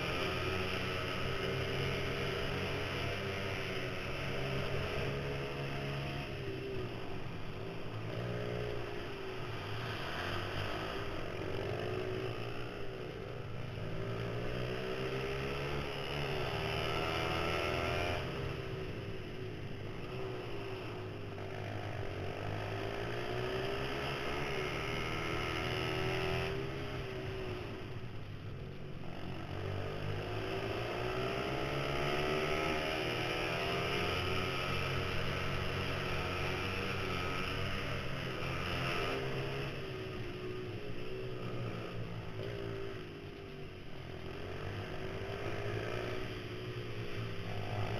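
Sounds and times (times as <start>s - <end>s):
small motorbike engine revving: 29.2s - 43.3s.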